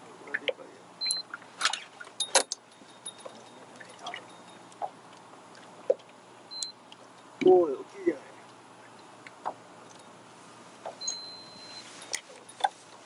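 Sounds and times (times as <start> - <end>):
low steady hum: 0.0 - 13.0
fishing tackle clicking and clinking: 2.2 - 4.8
short high electronic beep: 11.0 - 12.0.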